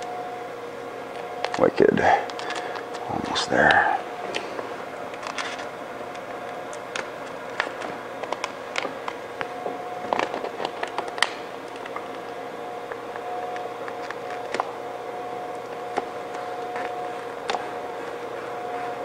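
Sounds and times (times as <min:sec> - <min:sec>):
vinyl film crackling and scraping: 0:01.0 - 0:03.4, 0:04.3 - 0:14.8, 0:15.5 - 0:19.0.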